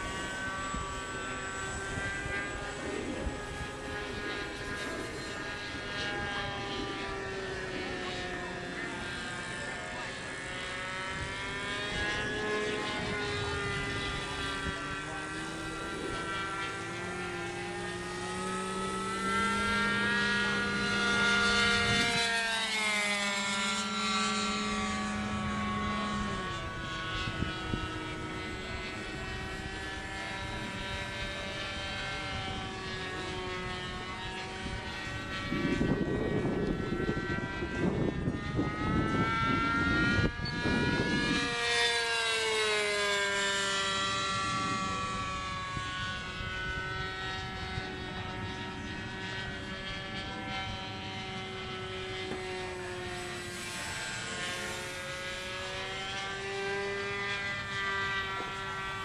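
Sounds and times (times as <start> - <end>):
model airplane engine: 0.0 - 59.0
wind buffeting on microphone: 24.7 - 41.7.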